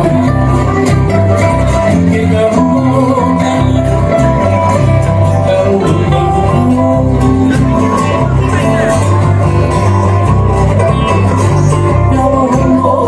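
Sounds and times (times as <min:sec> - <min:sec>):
bass line: 0:00.0 - 0:13.0
ukulele and guitars strumming: 0:00.0 - 0:13.0.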